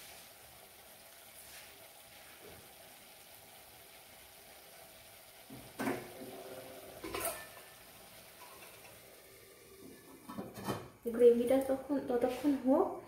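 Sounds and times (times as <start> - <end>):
gravy sizzling in a pan: 0.0 - 13.0
utensils clanking against pan: 7.0 - 7.7, 8.4 - 9.0, 10.2 - 10.9.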